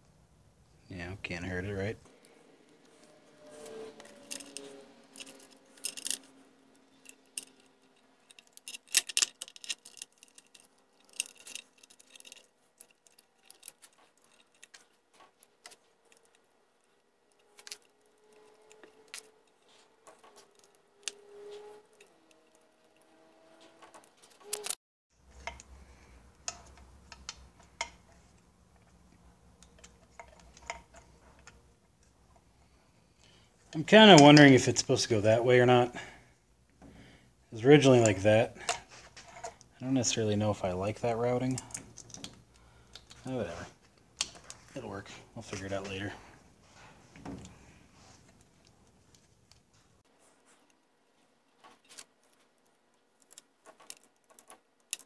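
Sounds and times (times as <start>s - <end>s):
small metal parts clicking: 2.8s - 32.4s, 41.4s - 44.8s, 51.6s - 55.0s.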